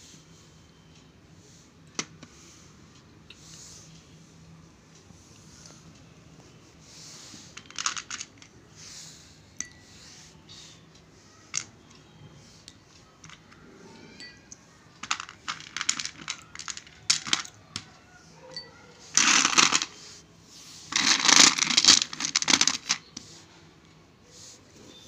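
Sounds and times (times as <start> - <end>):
clay chunks clicking on ceramic and glass: 15.0 - 18.0.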